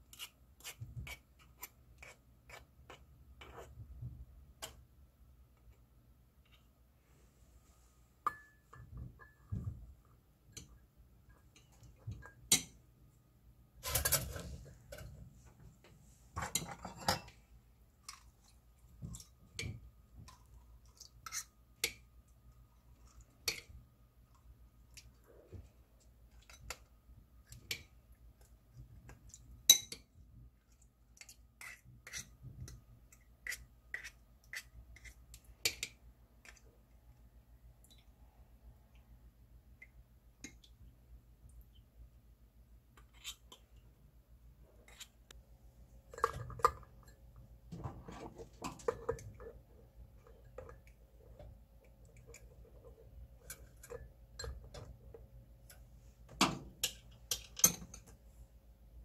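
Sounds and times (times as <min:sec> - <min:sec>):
teaspoon scraping: 0:43.0 - 0:43.6.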